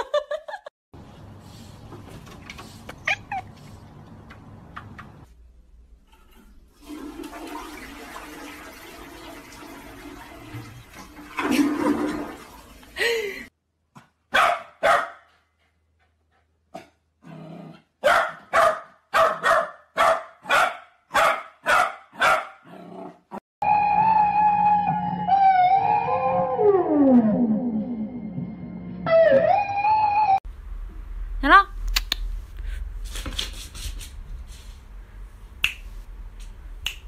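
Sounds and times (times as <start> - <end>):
toilet flushing: 6.1 - 13.5
dog barking: 14.3 - 15.3, 18.0 - 22.7.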